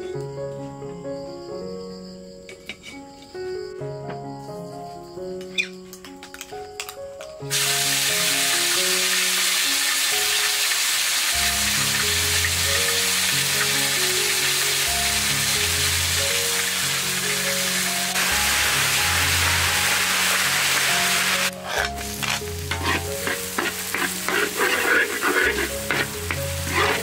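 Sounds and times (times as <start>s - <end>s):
background music: 0.0s - 27.0s
paste sizzling in hot oil: 7.5s - 27.0s.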